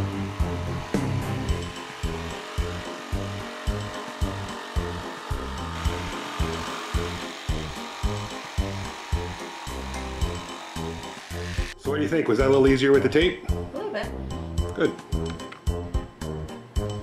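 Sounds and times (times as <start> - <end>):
jigsaw cutting plywood: 0.0 - 11.8
background music with steady beat: 0.0 - 17.0.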